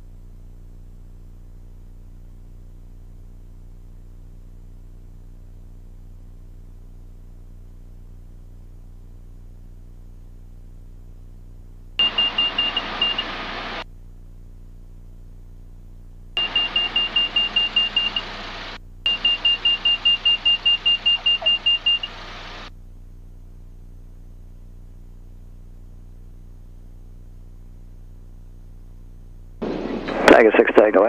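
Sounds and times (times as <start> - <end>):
rapid high warning beeps: 12.0 - 13.8, 16.4 - 22.7.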